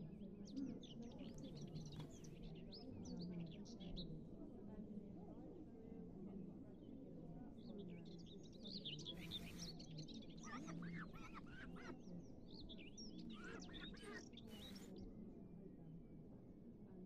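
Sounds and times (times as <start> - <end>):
birds chirping and twittering: 12.5 - 14.9.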